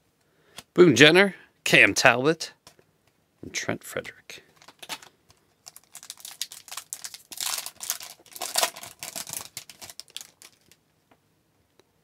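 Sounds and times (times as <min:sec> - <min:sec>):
foil pack crinkling and tearing: 0:04.6 - 0:10.8.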